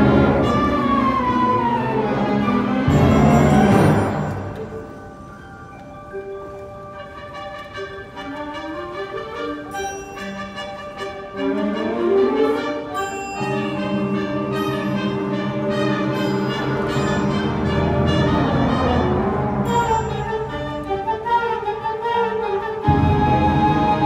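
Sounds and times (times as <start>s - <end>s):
concert band playing: 2.7s - 5.0s.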